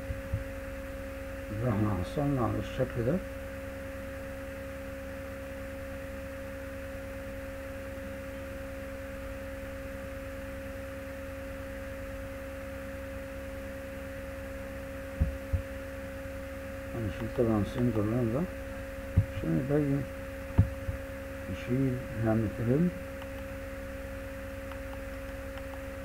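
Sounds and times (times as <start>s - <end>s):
electrical hum: 0.0s - 26.0s
soft thumps: 15.2s - 15.7s, 20.6s - 21.0s.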